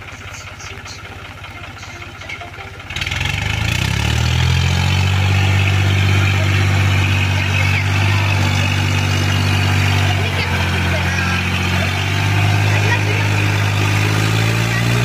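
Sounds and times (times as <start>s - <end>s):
tractor diesel engine revving: 0.0s - 15.0s.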